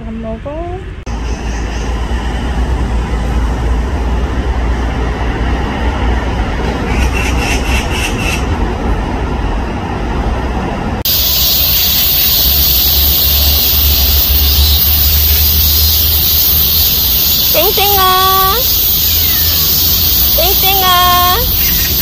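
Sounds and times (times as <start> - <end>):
loud high hiss: 11.0 - 22.0
pulsing chirps: 11.1 - 22.0.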